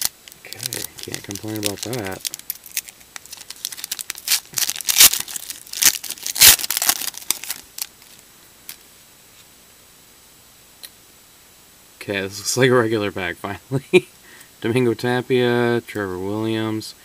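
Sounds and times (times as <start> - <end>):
wrapper tearing and crinkling: 0.0 - 8.2.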